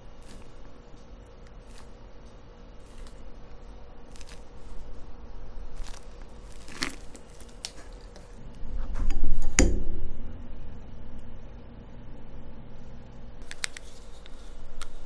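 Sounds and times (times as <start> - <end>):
piping bag squishing: 0.0 - 8.4.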